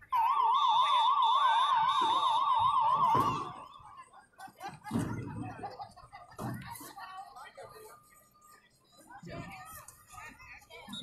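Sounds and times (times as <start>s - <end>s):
siren-like warbling tone: 0.0s - 3.8s.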